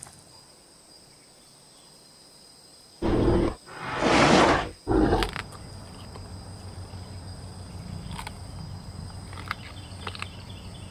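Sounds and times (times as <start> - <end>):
dinosaur roar: 3.0 - 5.4.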